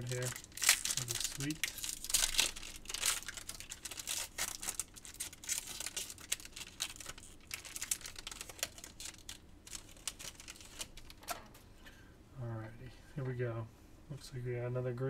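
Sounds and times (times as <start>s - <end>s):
foil wrapper crinkling and tearing: 0.0s - 11.3s.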